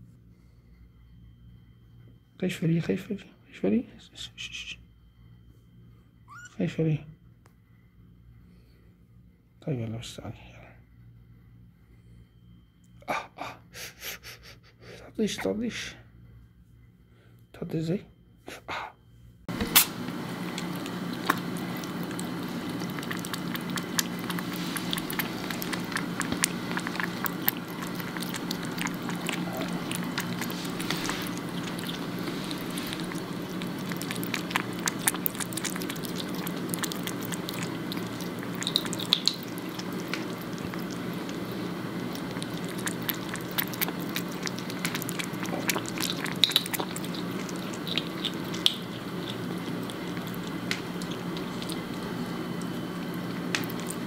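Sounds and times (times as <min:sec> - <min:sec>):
steady low hum: 0:00.0 - 0:54.0
kitten lapping water: 0:19.5 - 0:54.0.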